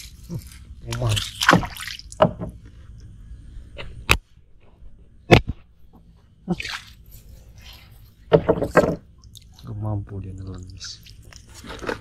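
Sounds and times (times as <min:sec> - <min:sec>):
water dripping and splashing: 0:00.9 - 0:02.3, 0:09.2 - 0:11.6.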